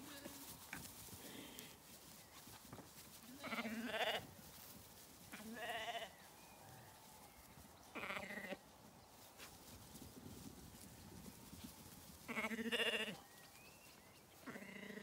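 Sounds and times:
lambs bleating: 0:03.2 - 0:04.3, 0:05.3 - 0:06.2, 0:07.9 - 0:08.6, 0:12.3 - 0:13.2, 0:14.4 - 0:15.0.

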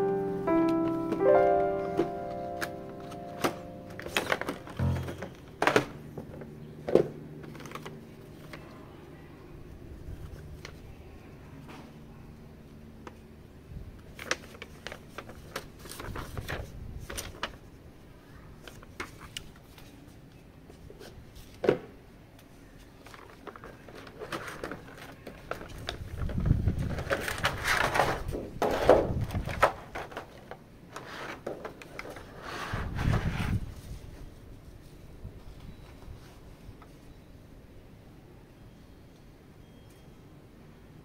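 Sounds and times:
packaging rustling and knocking: 0:03.5 - 0:05.9.

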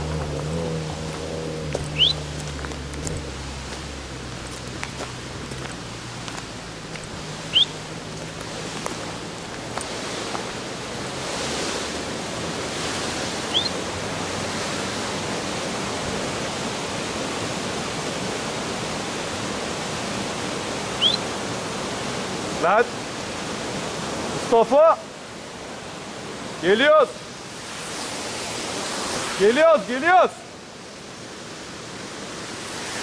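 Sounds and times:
waterfall rushing: 0:00.0 - 0:33.0
high rising chirps: 0:01.9 - 0:02.3, 0:07.5 - 0:07.8.

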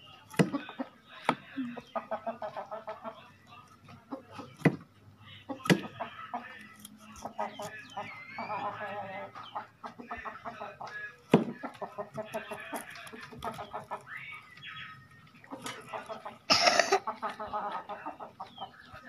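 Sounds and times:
clucking calls: 0:00.4 - 0:19.0.

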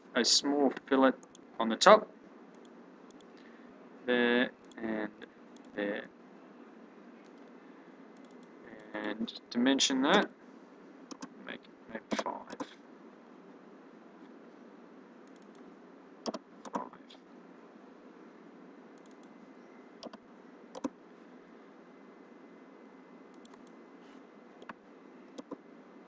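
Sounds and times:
faint steady hiss: 0:00.0 - 0:26.0
computer mouse clicks: 0:02.5 - 0:03.4, 0:05.6 - 0:05.8, 0:08.2 - 0:09.2, 0:11.1 - 0:11.3, 0:12.1 - 0:12.8, 0:15.2 - 0:16.9, 0:19.0 - 0:19.3, 0:20.0 - 0:21.0, 0:23.3 - 0:23.8, 0:24.6 - 0:25.6
keyboard key presses: 0:25.4 - 0:25.6.

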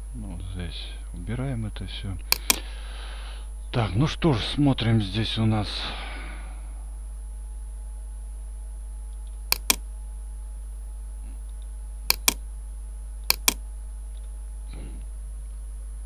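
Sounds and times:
steady low hum: 0:00.0 - 0:16.0
computer mouse clicking: 0:02.3 - 0:02.6, 0:09.2 - 0:09.8, 0:11.5 - 0:12.4, 0:13.3 - 0:13.6.

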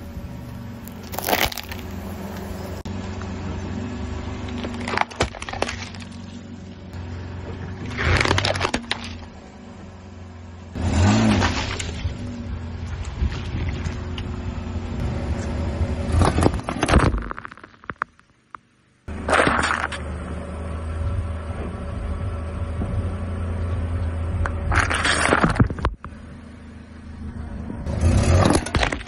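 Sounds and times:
car engine running: 0:00.0 - 0:29.0
tyres crunching and bursting things: 0:00.7 - 0:02.8, 0:04.4 - 0:06.6, 0:07.5 - 0:09.4, 0:11.0 - 0:14.3, 0:16.1 - 0:20.1, 0:24.5 - 0:26.2, 0:28.2 - 0:29.0.

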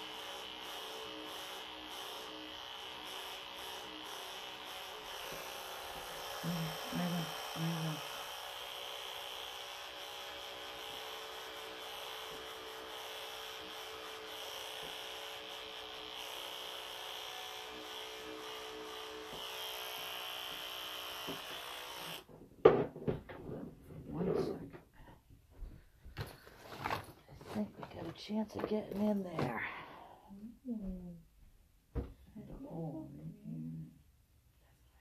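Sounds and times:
electric clippers buzzing: 0:00.0 - 0:22.3.

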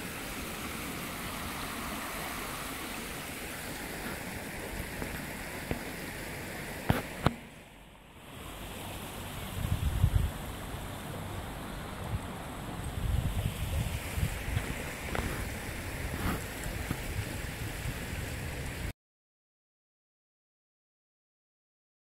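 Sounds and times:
stream running: 0:00.0 - 0:18.9
wind buffeting microphone: 0:09.3 - 0:18.9.

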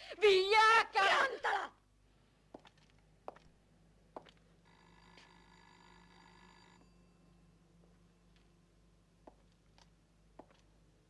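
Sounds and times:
electric bell ringing: 0:04.7 - 0:08.2.

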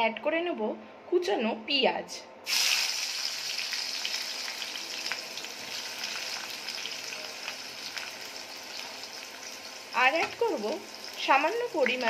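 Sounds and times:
onions sizzling in hot oil: 0:02.5 - 0:12.0.

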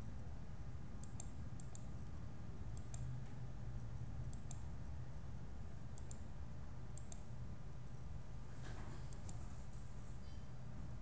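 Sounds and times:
computer mouse clicking: 0:01.0 - 0:02.1, 0:02.7 - 0:03.1, 0:04.3 - 0:04.7, 0:05.9 - 0:06.3, 0:06.9 - 0:07.3, 0:09.1 - 0:09.5.

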